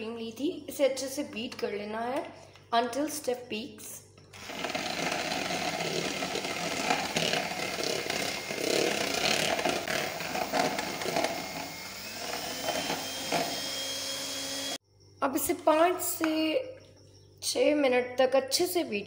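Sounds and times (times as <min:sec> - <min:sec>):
electric hand mixer whipping cream: 0:04.4 - 0:14.8.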